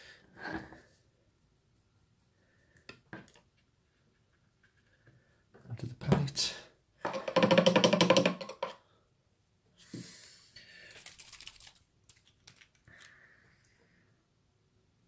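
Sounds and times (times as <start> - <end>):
paint pot rattling: 7.0 - 8.8.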